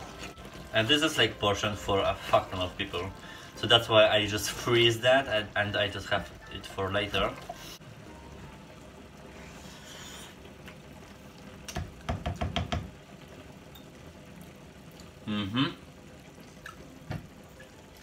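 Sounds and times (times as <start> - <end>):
pots boiling and hissing: 0.0 - 18.0
man saying mmm: 15.2 - 15.8.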